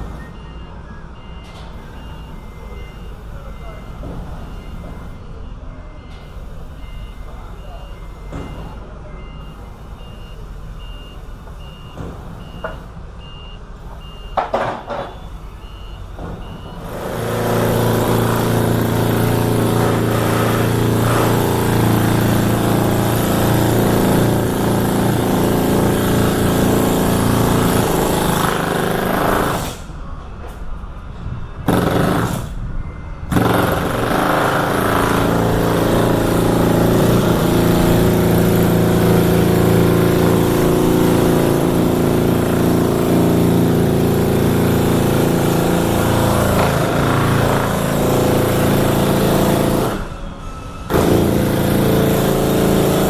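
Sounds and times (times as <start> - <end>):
high electronic beep: 0.1 - 14.4, 15.1 - 16.9, 32.8 - 33.3.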